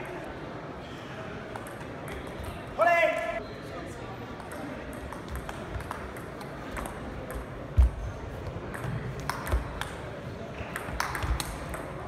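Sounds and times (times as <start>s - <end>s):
table tennis ball clicking: 10.7s - 12.0s.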